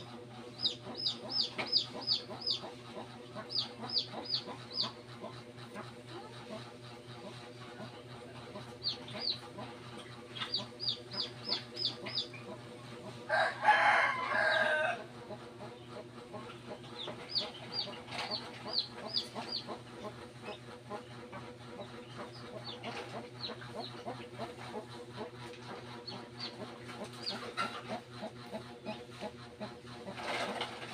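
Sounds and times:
chicks peeping: 0.1s - 30.9s
rooster crowing: 13.3s - 15.1s.

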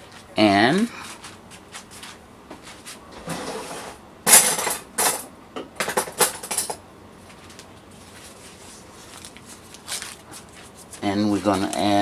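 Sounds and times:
kitchen utensils clinking: 3.3s - 6.8s.

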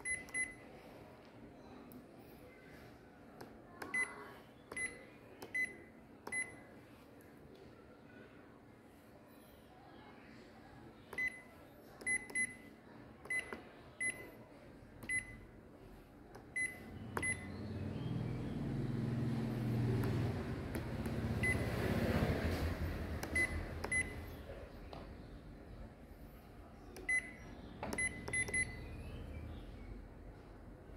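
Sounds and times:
low machine hum: 13.3s - 30.9s.

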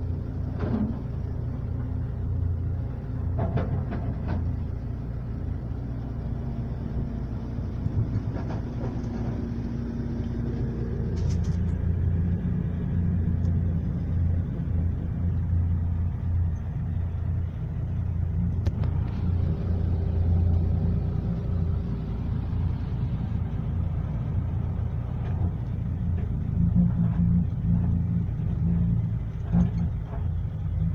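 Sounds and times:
diesel truck engine droning: 0.0s - 30.9s
short knocks and rattles: 3.2s - 4.5s.

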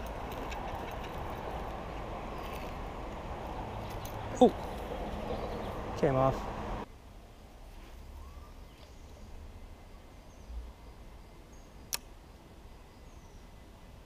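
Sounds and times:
faint high bird chirps: 8.1s - 10.7s.

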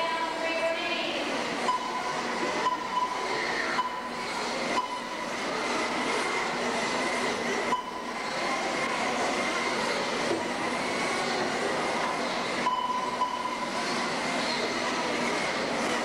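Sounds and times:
toy race car motors whining: 2.3s - 12.7s.

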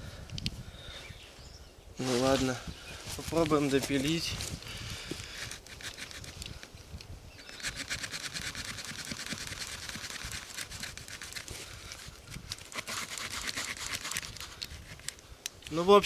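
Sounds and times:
hand saw cutting through log: 7.5s - 11.7s, 12.6s - 15.1s.

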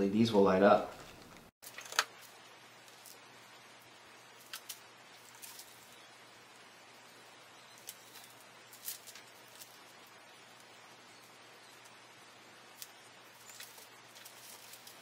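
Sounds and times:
low room hiss: 0.0s - 15.0s.

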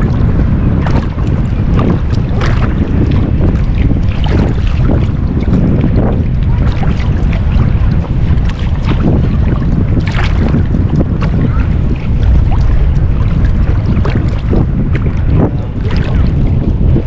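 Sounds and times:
water splashes and slaps: 0.0s - 17.0s
wind buffeting microphone: 0.0s - 17.0s.

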